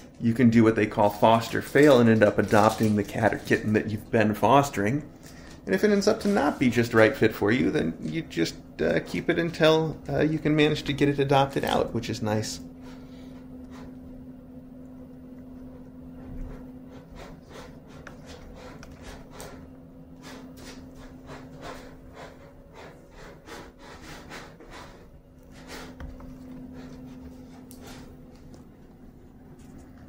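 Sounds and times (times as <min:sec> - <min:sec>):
steady low hum: 0:00.0 - 0:30.0
kittens' claws scratching: 0:15.7 - 0:29.0.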